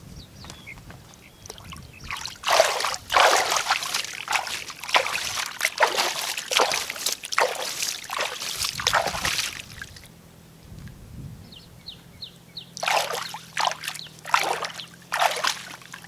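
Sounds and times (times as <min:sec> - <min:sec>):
hands splashing muddy water: 0:01.4 - 0:10.1, 0:12.8 - 0:16.0.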